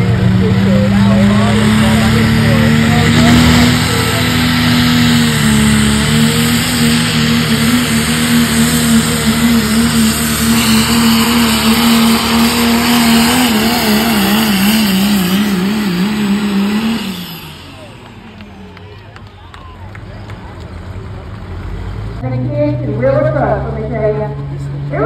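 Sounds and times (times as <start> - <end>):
high whine: 0.0 - 19.6
diesel truck engine at high rpm: 0.0 - 25.0.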